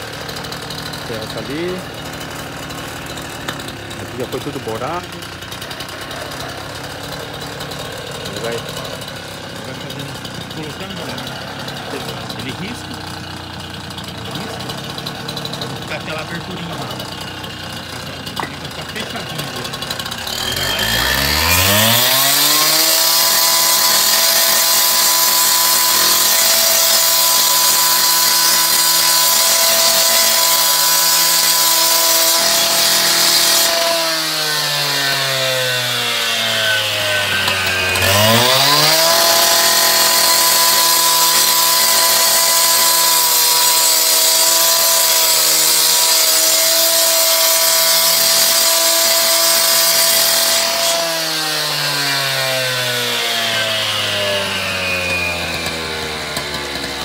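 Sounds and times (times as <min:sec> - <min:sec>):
cut-off saw cutting concrete: 0:00.0 - 0:57.0.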